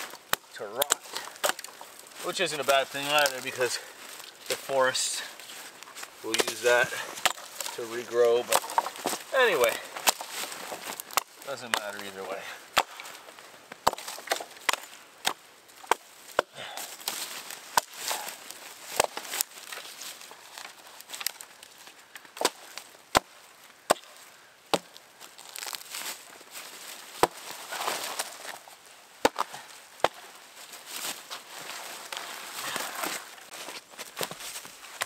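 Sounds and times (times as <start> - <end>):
rustling and crunching: 0.0 - 35.0
axe chopping wood: 0.1 - 1.8, 6.3 - 7.8, 8.4 - 12.1, 12.7 - 16.6, 17.7 - 19.4, 22.3 - 25.8, 27.2 - 27.5, 29.2 - 30.2.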